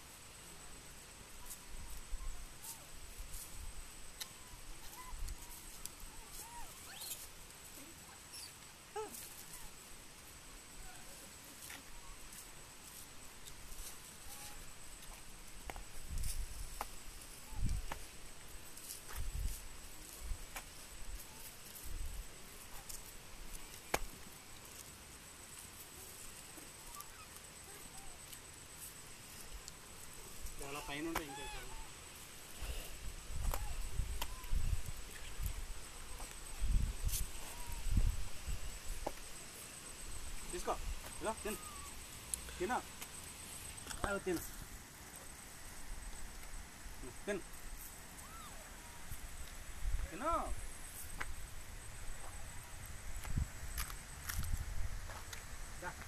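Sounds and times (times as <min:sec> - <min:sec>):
monkeys squeaky calls: 0:04.8 - 0:07.3, 0:30.7 - 0:32.0, 0:41.4 - 0:42.0.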